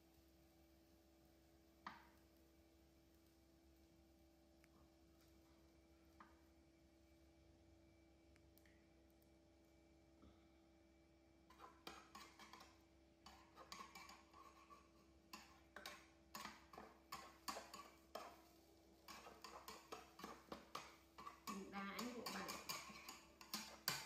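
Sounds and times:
faint steady hum: 0:00.0 - 0:24.0
metal spatula scraping frying pan: 0:11.5 - 0:24.0.

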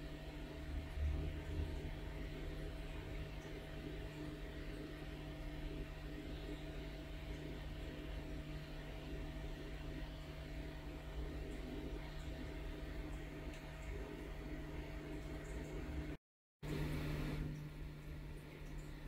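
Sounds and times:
low hum: 0:00.0 - 0:19.0.

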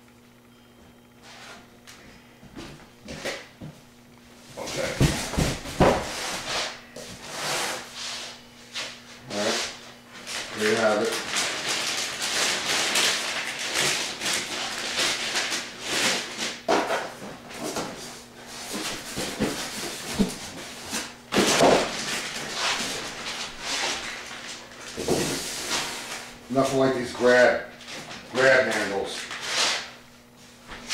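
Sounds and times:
plastic bag crinkling: 0:10.1 - 0:16.4.

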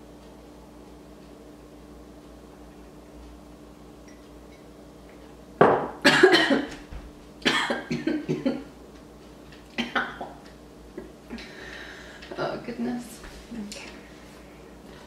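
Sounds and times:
woman coughing into elbow: 0:06.0 - 0:06.7, 0:07.4 - 0:08.6, 0:09.8 - 0:10.3.

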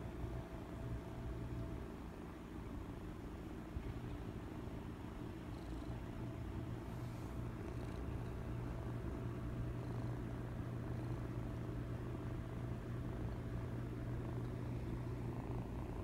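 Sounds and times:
kitten purring: 0:05.3 - 0:16.0.

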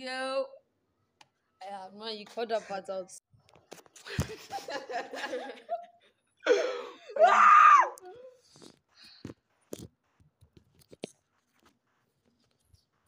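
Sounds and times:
boy's drawn-out vocal cry: 0:07.2 - 0:08.4.

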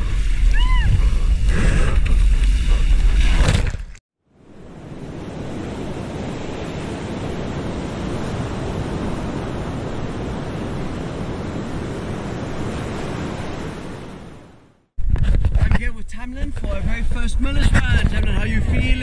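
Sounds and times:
ocean surf rushing: 0:04.4 - 0:14.8
wind buffeting microphone: 0:15.0 - 0:19.0.

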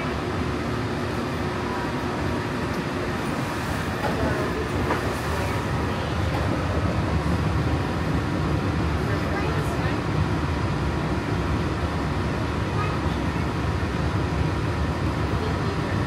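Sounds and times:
monorail train rumbling: 0:00.0 - 0:16.0.

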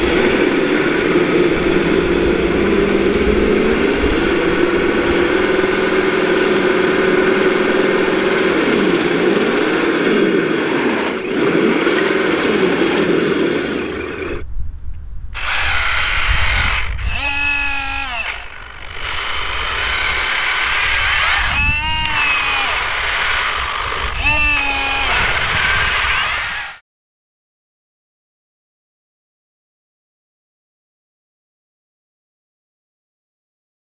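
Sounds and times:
low rumble: 0:00.0 - 0:07.7, 0:13.9 - 0:26.7
electric motors whining: 0:00.0 - 0:14.4, 0:15.4 - 0:26.8.

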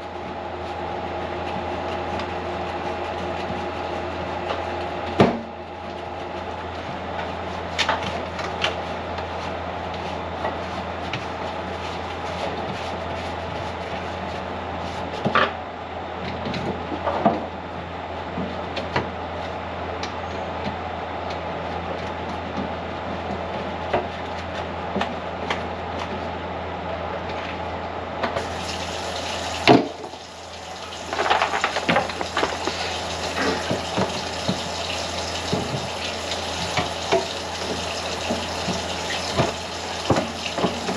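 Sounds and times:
water splashing in a sink: 0:28.4 - 0:40.9
knocks and clatters: 0:31.0 - 0:32.8.

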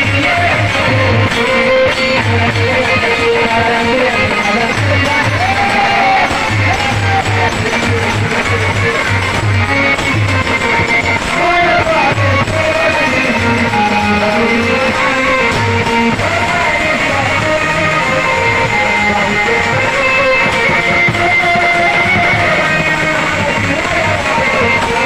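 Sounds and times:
repeating drum beat: 0:00.0 - 0:25.0.

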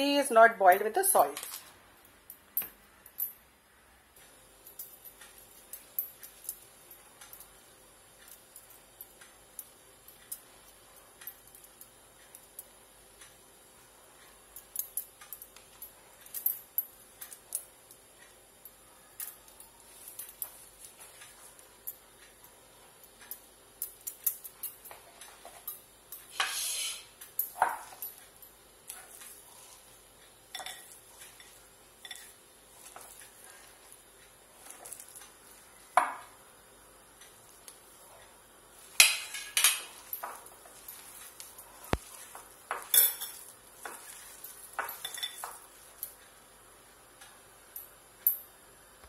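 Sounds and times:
metal spoon scraping glass bowl: 0:26.3 - 0:27.1
metal bangles knocking together: 0:27.2 - 0:29.4, 0:38.9 - 0:46.2.

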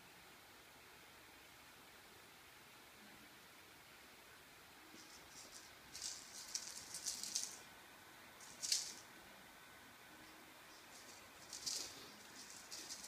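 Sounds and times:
cat toy rattling on tiles: 0:05.0 - 0:07.6, 0:08.4 - 0:09.1, 0:10.8 - 0:13.0.

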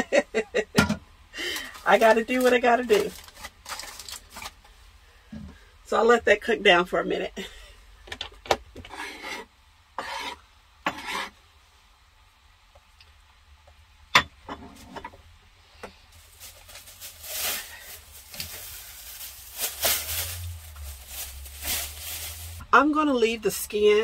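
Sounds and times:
plastic bag crinkling: 0:01.4 - 0:04.7, 0:16.1 - 0:22.6.

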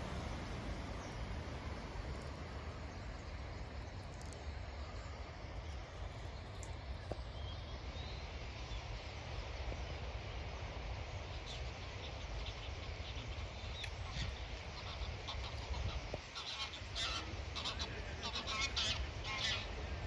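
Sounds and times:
flock of birds calling: 0:11.5 - 0:20.0.

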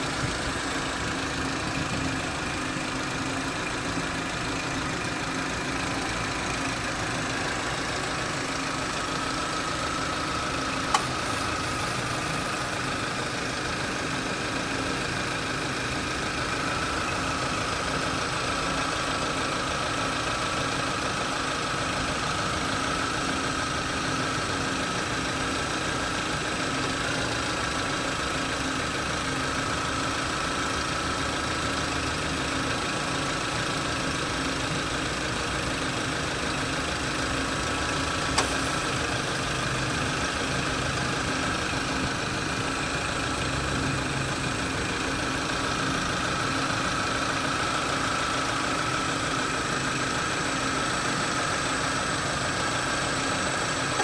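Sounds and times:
car engine idling: 0:00.0 - 0:54.0
high engine whine: 0:00.0 - 0:54.0
sharp click: 0:10.9 - 0:11.3, 0:38.3 - 0:38.8.

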